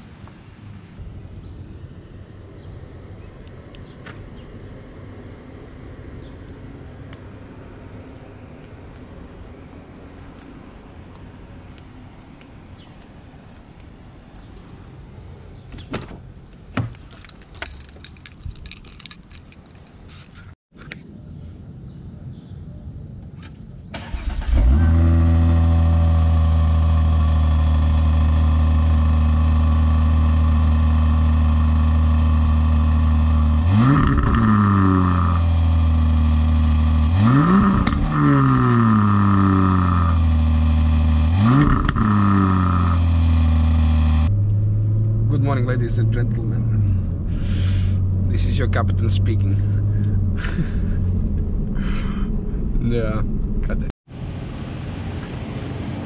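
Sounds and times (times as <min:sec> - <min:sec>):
car engine starting and idling: 0:23.9 - 0:56.0
car engine revving: 0:24.0 - 0:53.7.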